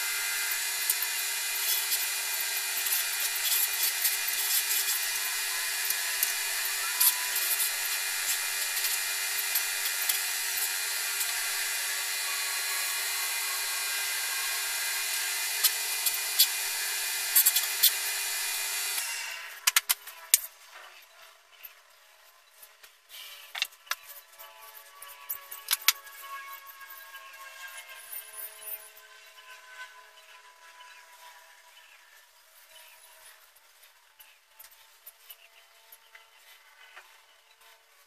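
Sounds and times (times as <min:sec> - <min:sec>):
sandpaper sanding hiss: 0:00.0 - 0:19.4
wood lathe motor whine: 0:00.0 - 0:19.6.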